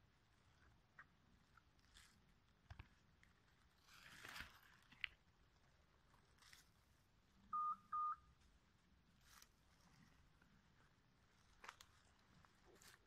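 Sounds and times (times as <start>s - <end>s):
crackles in dry leaf litter: 1.4s - 7.1s, 9.1s - 13.0s
short electronic beeps: 7.5s - 8.3s.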